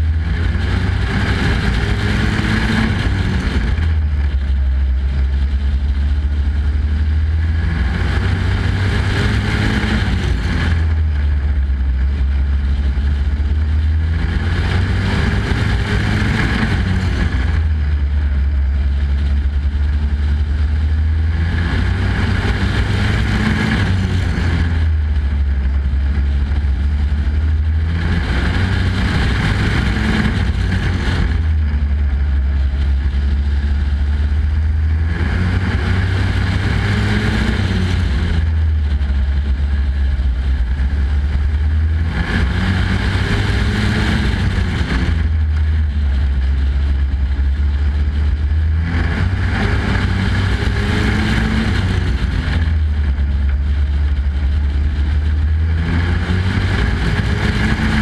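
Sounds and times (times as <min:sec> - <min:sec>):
race truck engine accelerating: 0:00.0 - 0:04.6, 0:06.8 - 0:19.8, 0:20.4 - 0:58.0.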